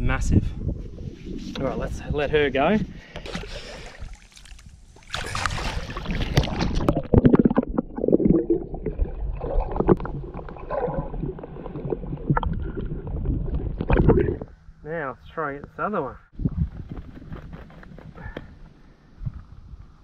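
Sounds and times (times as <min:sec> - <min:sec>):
water splashing and sloshing: 0:03.1 - 0:14.7.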